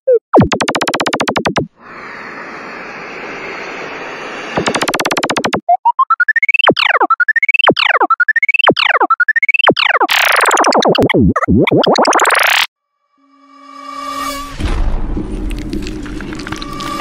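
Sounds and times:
swooping synth tone: 4.6s - 12.7s.

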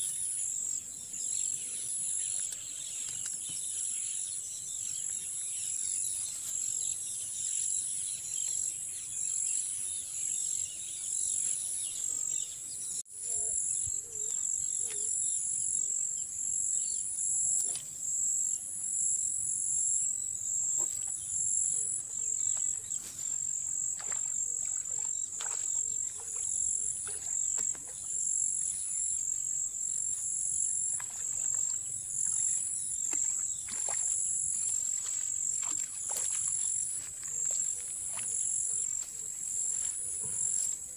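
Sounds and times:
insects chirring: 13.3s - 40.9s.

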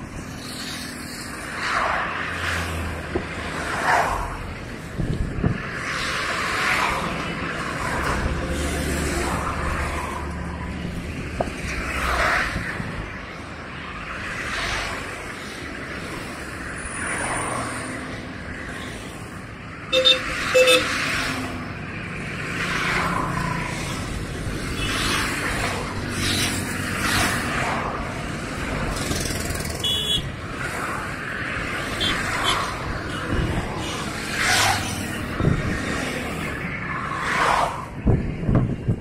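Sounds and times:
highway traffic passing: 0.0s - 39.0s
car horn toots: 19.9s - 20.9s, 29.8s - 30.3s.

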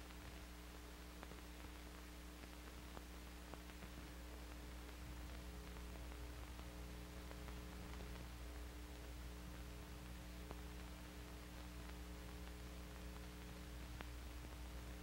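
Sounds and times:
film soundtrack hum and hiss: 0.0s - 15.0s.

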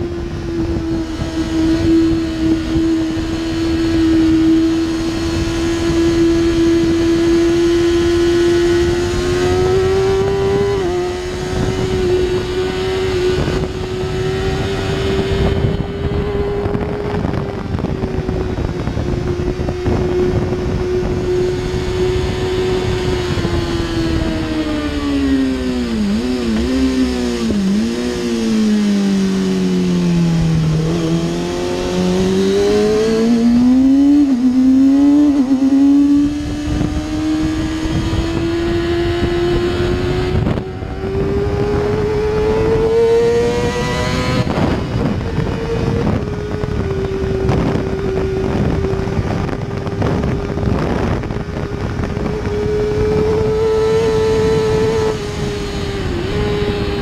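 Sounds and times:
motorcycle engine at high revs: 0.0s - 57.0s
wind rush: 0.0s - 57.0s.

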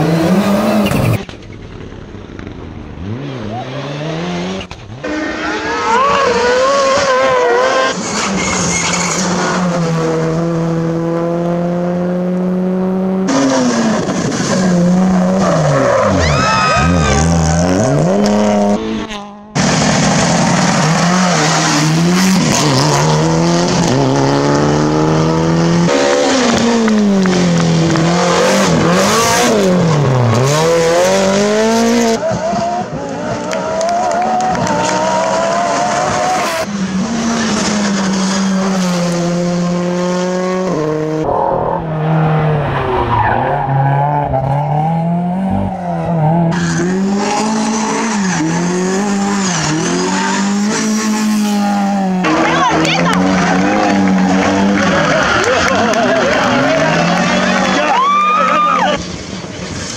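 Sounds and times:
rally car engines revving: 0.0s - 59.9s
tyre squeal: 15.2s - 17.8s.

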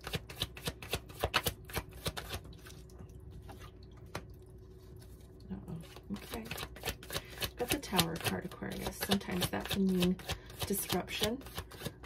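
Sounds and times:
cards being shuffled: 0.0s - 2.4s.

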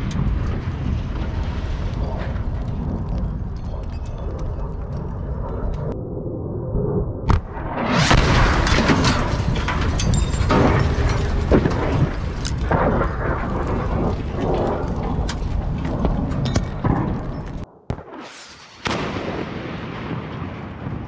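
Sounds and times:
heavy rumble: 0.0s - 17.8s
explosion blast: 7.2s - 21.0s.

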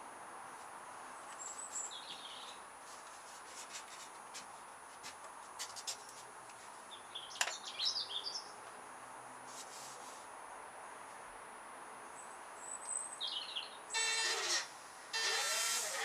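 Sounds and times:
small birds chirping: 1.2s - 2.6s, 6.9s - 8.6s, 12.2s - 13.9s.

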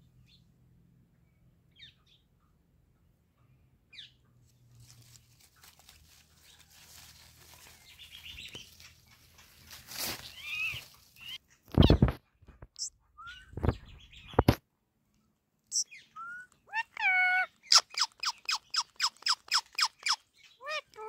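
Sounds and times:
parakeet chirping: 15.7s - 21.0s.

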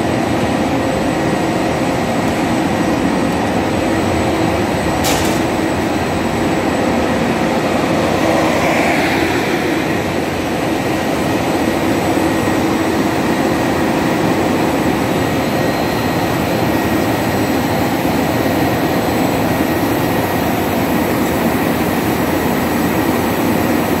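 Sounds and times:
printing press running: 0.1s - 8.2s.

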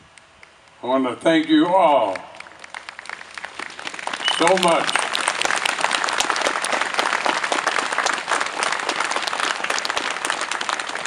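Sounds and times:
crowd applauding: 1.4s - 11.0s.

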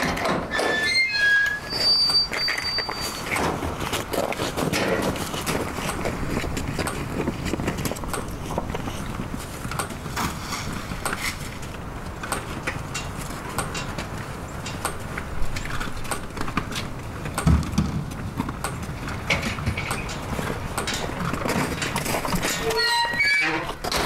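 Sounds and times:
footsteps crunching on snow: 3.6s - 11.7s.

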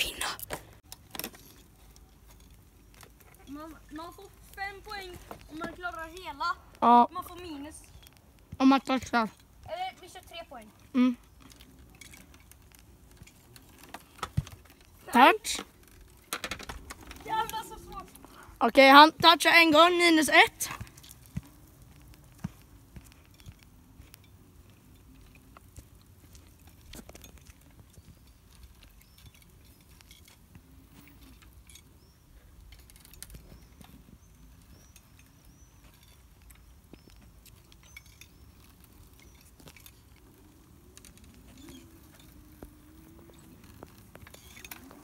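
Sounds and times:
kart frame clicks and rattles: 11.3s - 18.1s, 32.6s - 45.0s
hoverboard kart rolling rumble: 11.6s - 18.3s, 38.4s - 45.0s.

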